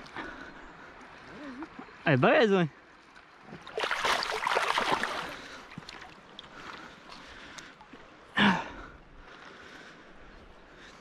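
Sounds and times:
fish splashing in water: 3.5s - 6.6s.

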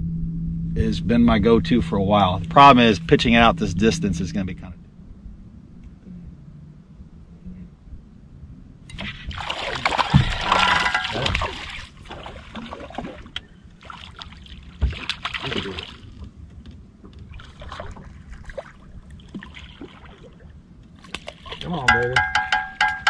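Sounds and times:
waves slapping against boat hull: 8.9s - 23.0s.

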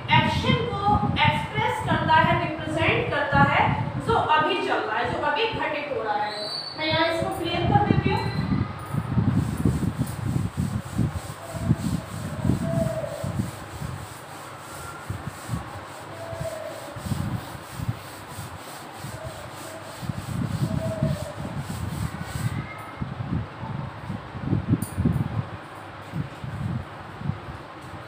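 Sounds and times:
duster rubbing on chalkboard: 9.3s - 22.7s.

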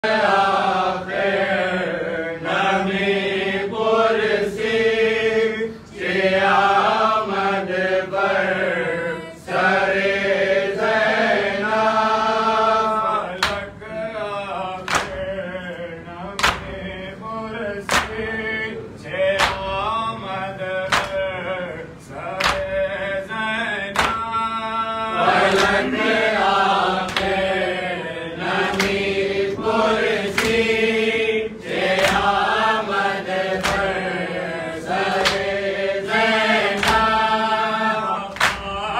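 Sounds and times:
men chanting a lament: 0.0s - 38.9s
chest-beating slaps: 13.4s - 13.8s, 14.8s - 15.3s, 16.4s - 16.8s, 17.9s - 18.2s, 19.4s - 19.7s, 20.9s - 21.3s, 22.4s - 22.7s, 24.0s - 24.2s, 25.5s - 26.0s, 27.0s - 27.5s, 28.6s - 29.1s, 30.3s - 30.7s, 31.7s - 32.4s, 33.3s - 34.1s, 35.1s - 35.6s, 38.3s - 38.8s.

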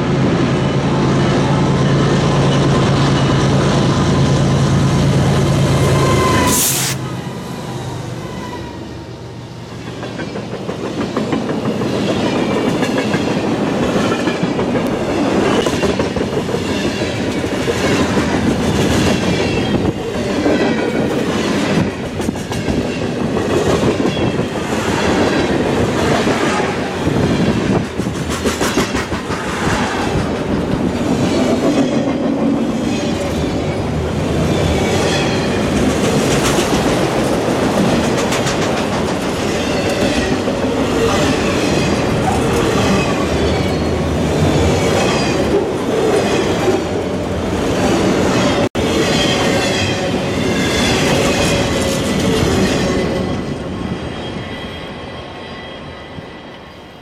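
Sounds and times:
train rolling rumble: 0.0s - 56.7s
train wheels clattering on rails: 9.7s - 47.0s, 47.7s - 54.4s.

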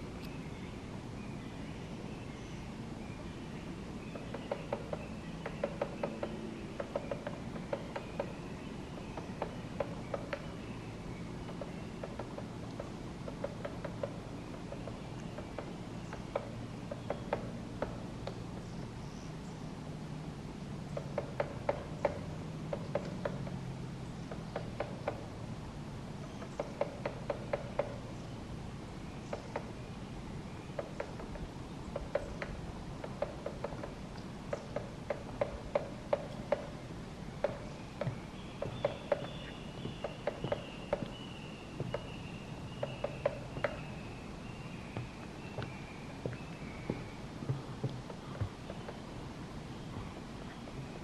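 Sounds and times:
steady low hum: 0.0s - 51.0s
woodpecker pecking at bark: 4.1s - 8.4s, 9.0s - 10.6s, 11.4s - 18.7s, 21.0s - 23.6s, 24.3s - 25.3s, 26.3s - 28.1s, 29.3s - 29.7s, 30.7s - 51.0s.

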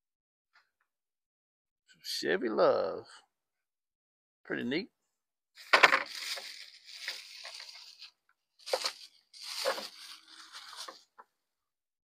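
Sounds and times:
plastic bag crinkling: 5.9s - 11.1s.

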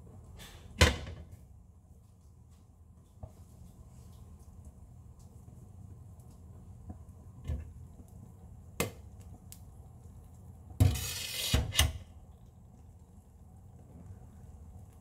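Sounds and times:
low steady hum: 11.9s - 15.0s.

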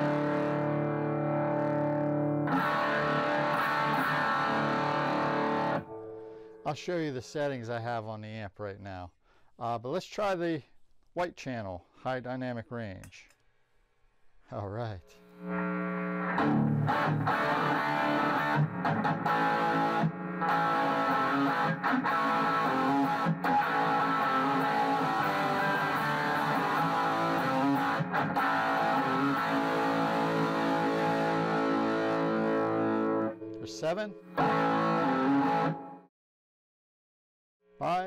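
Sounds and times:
distorted electric guitar chords and riffs: 0.0s - 6.6s, 15.2s - 36.1s.

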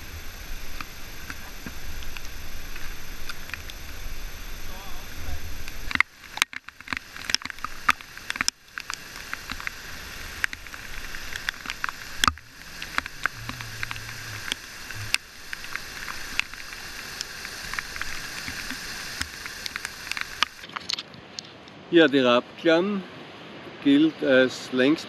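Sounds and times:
waterfall rushing: 0.0s - 20.6s
kayak paddle clicks and splashes: 5.6s - 21.8s.

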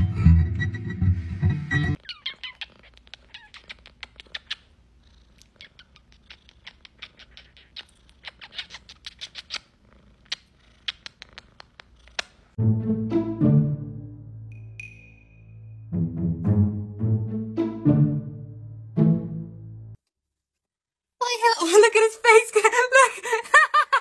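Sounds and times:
kissing smacks: 2.2s - 4.7s, 5.4s - 12.4s
cat purring: 2.2s - 12.4s.

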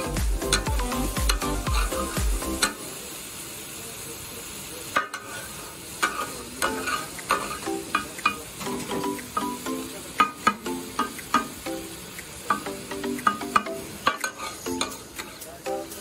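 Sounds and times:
background music with beat: 0.0s - 2.8s, 6.6s - 16.0s
meat sizzling on griddle: 0.0s - 16.0s
metal spatula scraping griddle: 5.0s - 8.9s, 14.0s - 15.5s.

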